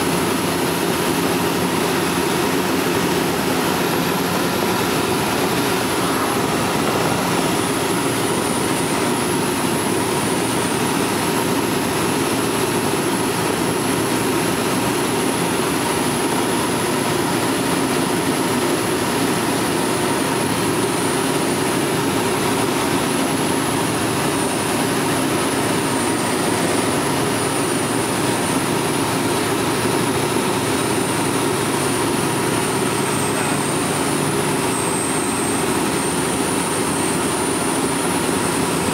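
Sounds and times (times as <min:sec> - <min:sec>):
aircraft engine and propeller drone: 0:00.0 - 0:38.9
thin high whine: 0:00.0 - 0:38.9
airflow noise: 0:00.7 - 0:13.5, 0:20.4 - 0:32.1.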